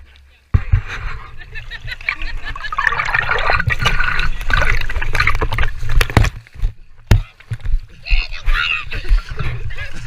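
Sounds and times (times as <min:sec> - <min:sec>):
water splashing and sloshing: 0:01.5 - 0:07.6.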